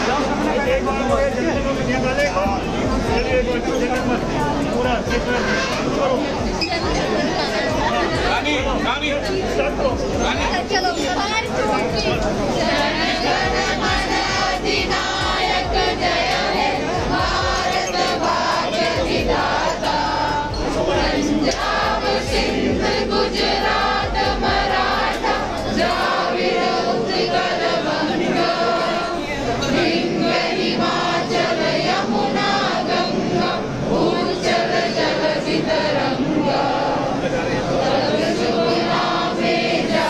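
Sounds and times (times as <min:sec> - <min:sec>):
crowd chanting and cheering: 0:11.4 - 0:40.0.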